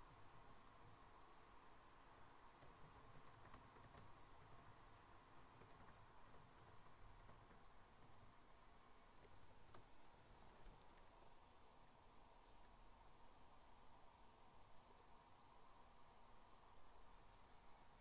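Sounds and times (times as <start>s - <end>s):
faint keyboard clicks: 0.4s - 1.2s, 2.1s - 8.2s, 9.1s - 9.9s, 12.4s - 12.7s.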